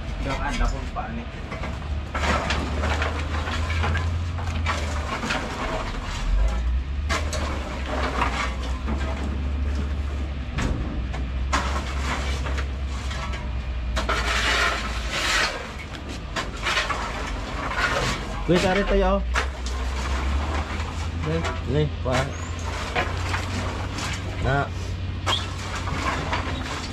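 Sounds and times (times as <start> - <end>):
coconut shells clattering under a rake: 1.5 - 26.9.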